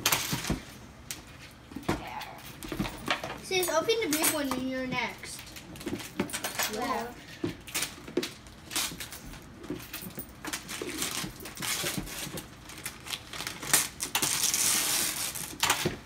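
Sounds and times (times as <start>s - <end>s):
wrapping paper tearing and rustling: 7.6s - 9.4s, 10.4s - 16.0s.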